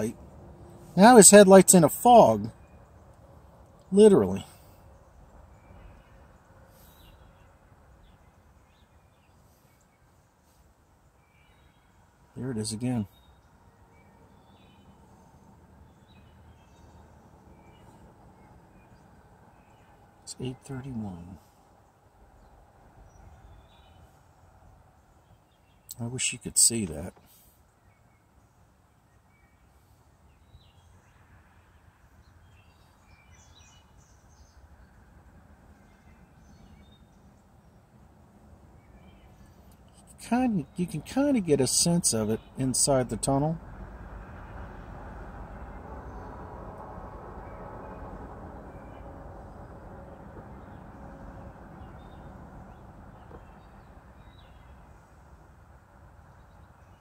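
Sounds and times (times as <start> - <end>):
faint birds chirping and whistling: 0.0 - 44.3, 45.2 - 57.0
low steady rumble: 34.1 - 57.0.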